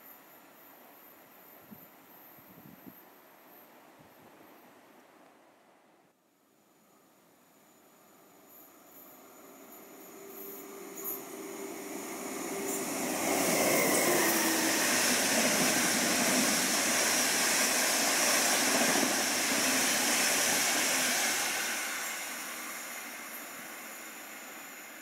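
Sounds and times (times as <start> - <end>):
train passing: 7.6 - 25.0.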